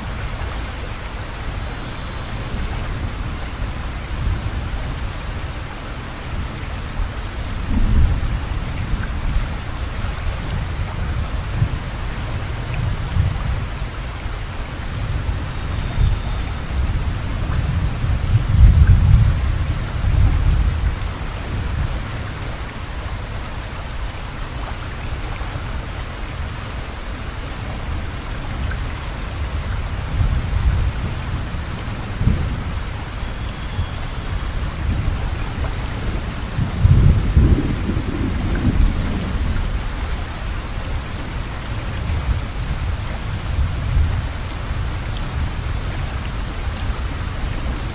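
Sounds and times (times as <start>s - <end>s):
heavy rainfall: 0.0s - 47.9s
thunder rolling: 36.0s - 39.7s.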